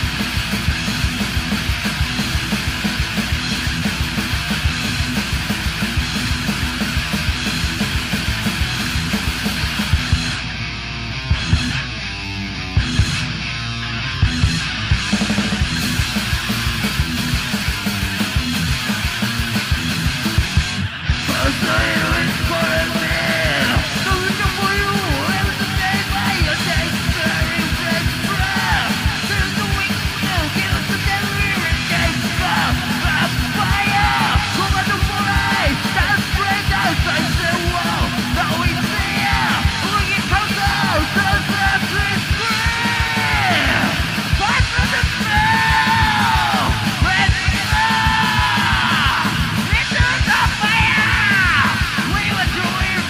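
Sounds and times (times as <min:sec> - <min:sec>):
driving drums: 0:00.0 - 0:53.0
fast loud rock song: 0:00.0 - 0:53.0
yelled vocals: 0:14.5 - 0:53.0.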